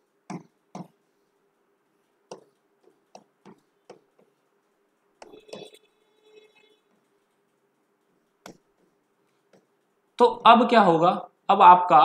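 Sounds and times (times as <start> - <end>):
marker tapping on board: 0.2 - 1.0, 2.2 - 4.4, 8.3 - 9.8.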